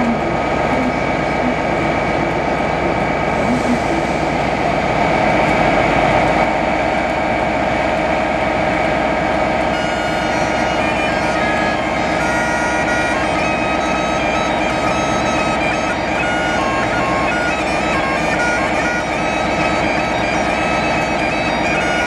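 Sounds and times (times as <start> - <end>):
diesel locomotive idling: 0.0 - 22.0
bagpipes playing: 9.7 - 22.0.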